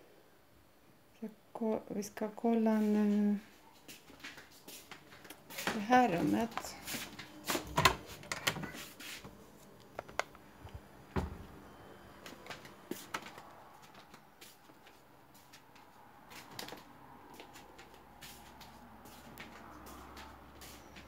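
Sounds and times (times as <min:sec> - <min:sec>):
handling clicks and knocks: 0:09.8 - 0:10.4.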